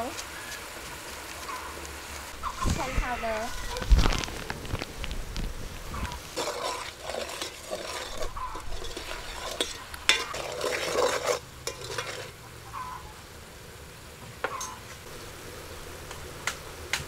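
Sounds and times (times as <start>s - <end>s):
curry paste sizzling in oil: 0.0s - 13.2s
metal ladle scraping a pot: 6.1s - 12.4s.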